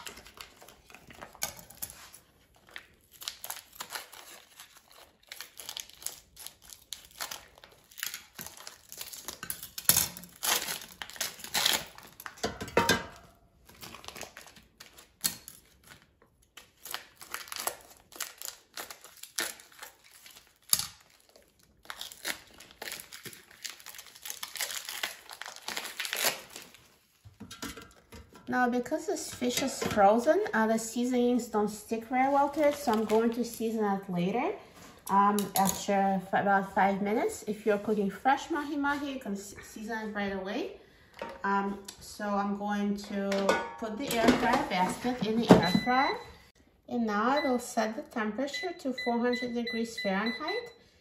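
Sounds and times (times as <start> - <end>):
plastic wrap crinkling and tearing: 0.0 - 12.5, 13.2 - 28.1, 32.1 - 33.7.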